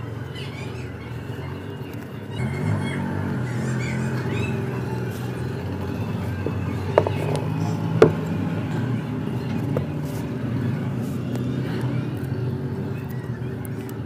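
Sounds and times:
terracotta pot knocking: 6.4 - 8.2.

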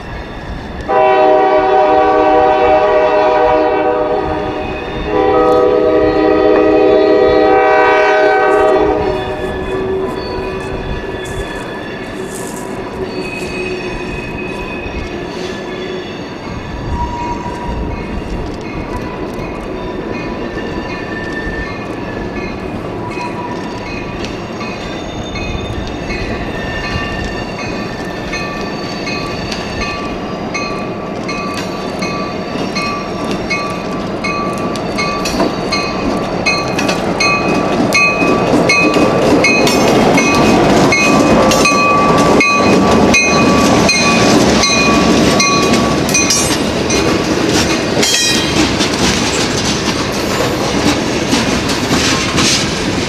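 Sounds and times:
diesel locomotive: 0.0 - 53.0
wheels squealing on rails: 0.0 - 53.0
wheels clicking over rail joints: 17.5 - 53.0.

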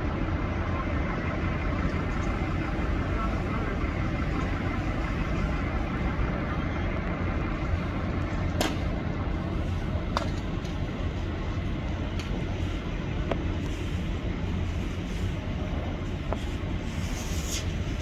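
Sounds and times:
heavy diesel machinery running: 0.0 - 18.0.

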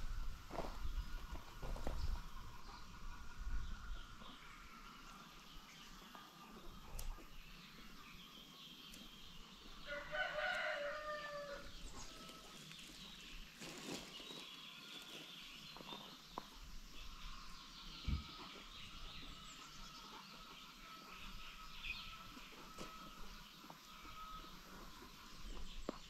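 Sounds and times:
chickens clucking: 1.1 - 8.0
rooster crowing: 9.8 - 12.6.

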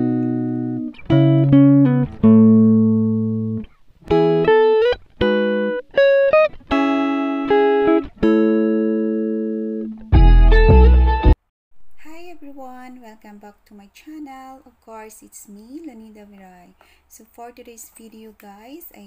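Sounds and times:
plucked guitar notes: 0.0 - 12.0.

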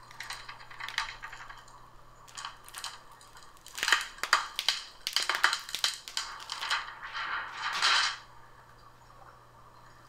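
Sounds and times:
plastic film crinkling: 0.0 - 1.7, 2.3 - 7.0.

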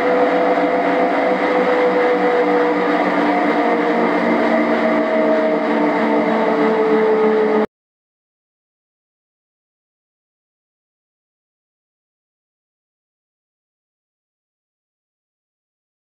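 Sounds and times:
bike tyre whirring on a test drum: 0.0 - 7.7.

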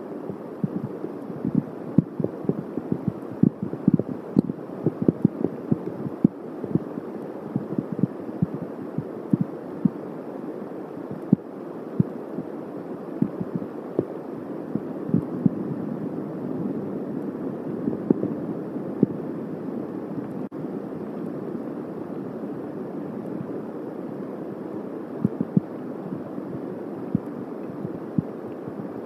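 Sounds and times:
steady rain: 0.0 - 29.0
raindrops thumping on microphone: 0.3 - 10.0.

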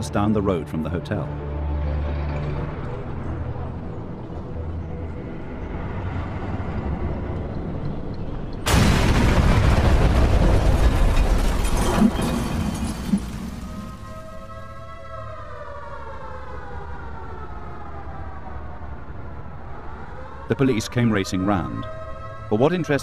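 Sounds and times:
bomb blast with rumbling roar: 8.7 - 14.1.

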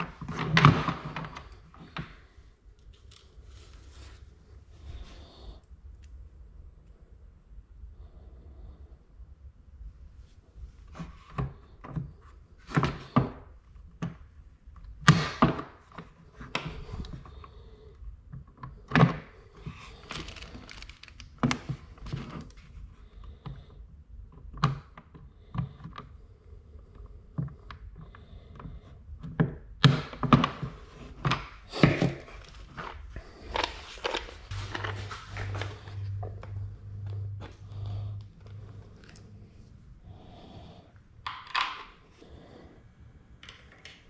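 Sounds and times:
objects clattering on a desk: 41.3 - 42.0.

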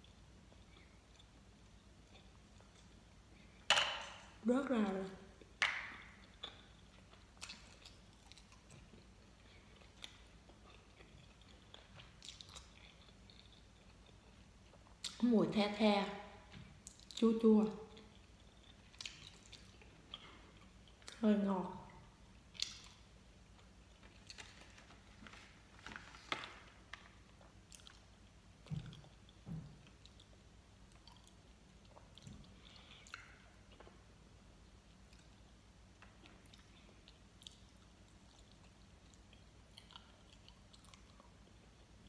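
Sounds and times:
chewing gummy candy: 6.1 - 15.2, 16.6 - 21.3, 27.0 - 34.0, 34.9 - 42.0.

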